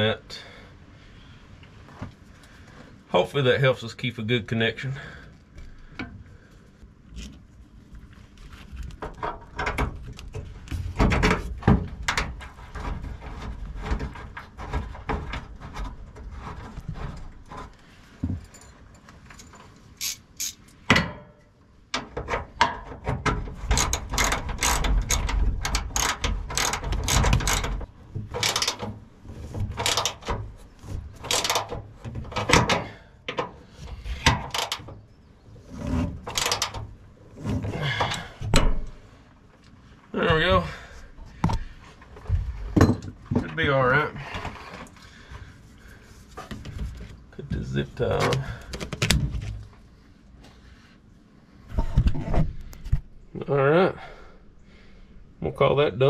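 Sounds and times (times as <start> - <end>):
ratchet wrench clicking: 20.0 - 20.7, 23.8 - 27.7, 28.4 - 28.8.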